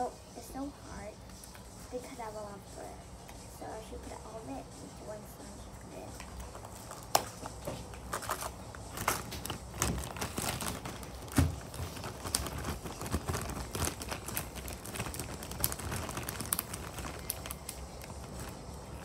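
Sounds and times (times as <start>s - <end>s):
plastic bag crinkling: 6.1s - 19.0s.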